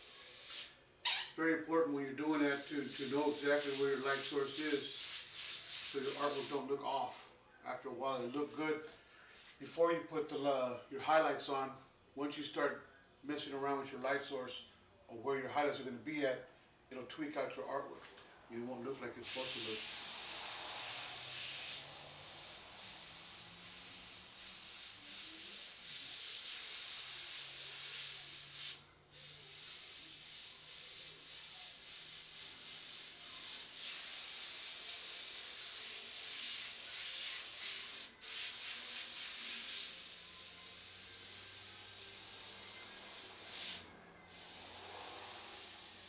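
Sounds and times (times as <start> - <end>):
airbrush spraying paint: 0.0 - 1.4, 2.3 - 7.3, 19.2 - 46.0.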